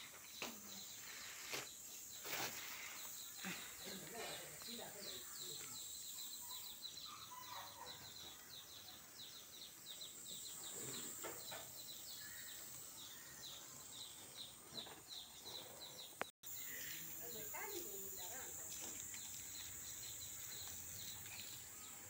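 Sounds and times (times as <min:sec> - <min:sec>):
high hiss: 0:00.0 - 0:06.7, 0:16.4 - 0:22.0.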